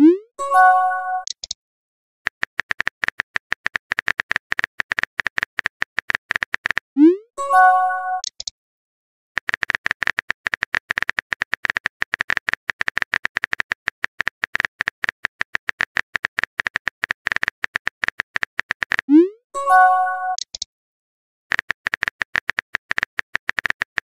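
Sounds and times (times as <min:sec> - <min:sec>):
phone keyboard typing clicks: 0:01.2 - 0:01.6, 0:02.3 - 0:06.9, 0:08.2 - 0:08.5, 0:09.4 - 0:19.2, 0:20.3 - 0:20.7, 0:21.5 - 0:24.0
message arrival chime: 0:07.4 - 0:08.2, 0:19.6 - 0:20.4.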